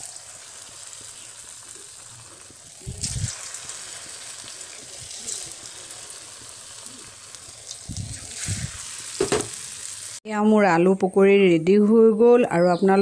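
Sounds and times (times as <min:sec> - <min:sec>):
potatoes sizzling in hot oil: 0:00.0 - 0:10.2.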